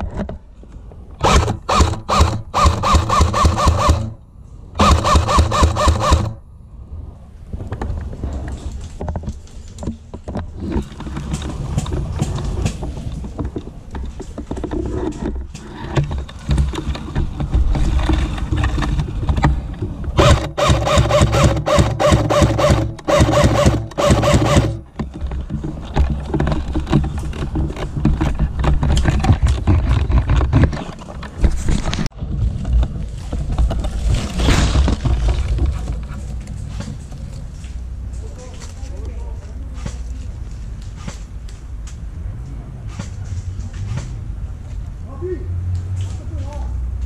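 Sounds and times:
low rumbling noise: 0.0 - 47.0
airsoft rifle firing bursts: 1.2 - 4.2, 4.8 - 6.4, 20.2 - 24.8.

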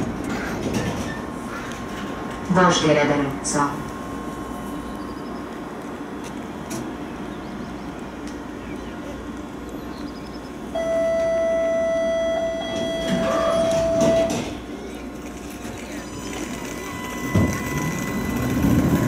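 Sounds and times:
tram equipment humming: 0.0 - 19.0
tram door warning tone: 10.0 - 19.0.

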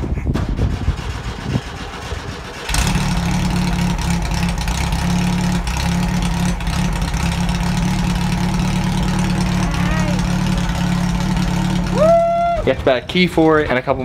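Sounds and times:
engine cranking and idling: 0.3 - 14.0.

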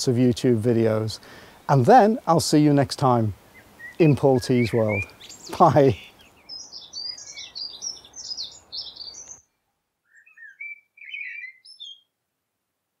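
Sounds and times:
faint hiss: 0.0 - 9.5
songbirds twittering: 2.6 - 12.1
low warbled bird phrase: 3.6 - 9.4.

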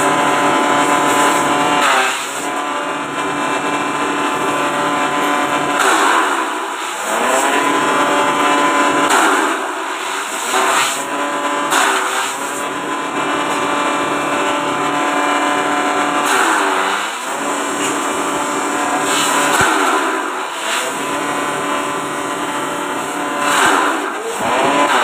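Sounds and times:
blades shredding grass: 0.1 - 2.5, 3.3 - 12.6, 13.2 - 25.0
electric motor humming: 17.1 - 25.0.

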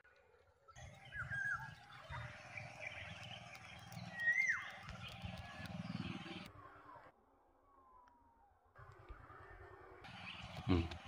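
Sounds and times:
bird whistling calls: 1.0 - 3.3, 4.0 - 6.0.

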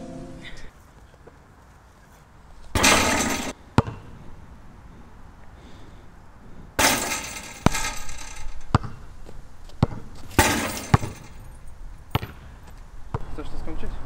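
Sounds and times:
rattling crashes: 2.8 - 3.6, 6.8 - 8.7, 10.3 - 11.5
basketball bouncing on court: 2.8 - 4.1, 8.7 - 9.0, 9.8 - 11.3, 12.1 - 12.4, 13.1 - 13.3.

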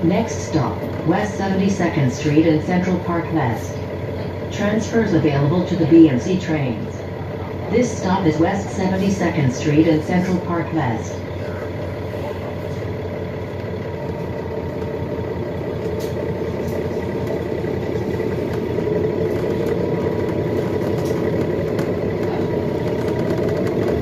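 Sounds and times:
bus engine hum with whine: 0.0 - 24.0.

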